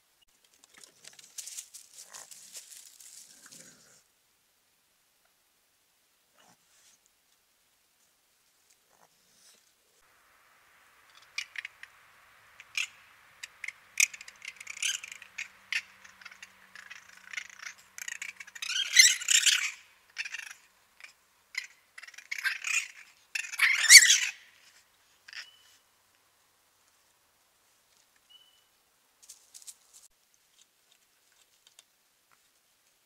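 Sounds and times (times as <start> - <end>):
raccoons squeaking and chittering: 11.0 - 25.8
raccoons squealing harshly: 12.6 - 24.7.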